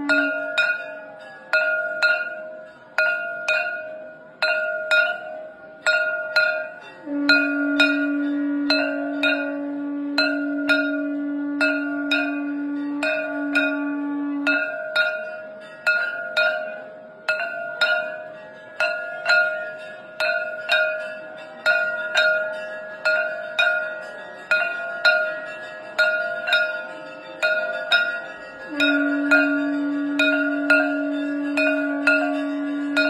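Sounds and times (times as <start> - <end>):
conch shell blown note: 0.0 - 2.5, 6.0 - 18.3, 26.2 - 33.0
hand gong struck ringing: 0.0 - 33.0.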